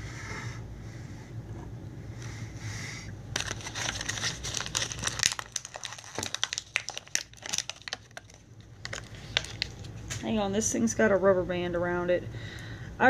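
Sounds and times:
plastic packaging crinkling: 3.4s - 10.3s.

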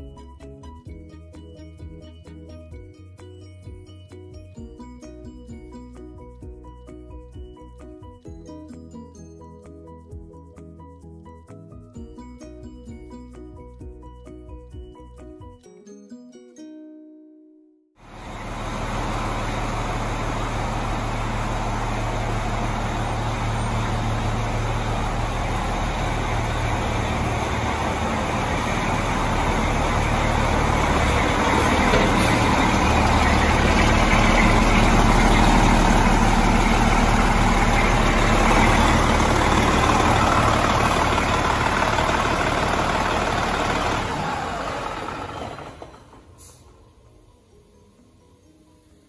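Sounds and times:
diesel engine running: 18.0s - 47.1s.

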